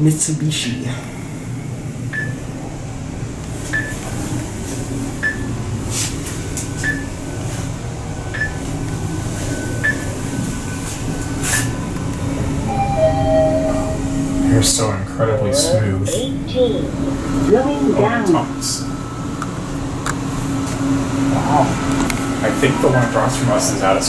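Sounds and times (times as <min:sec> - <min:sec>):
elevator ride hum: 0:00.0 - 0:24.0
short high beeps: 0:12.7 - 0:14.5.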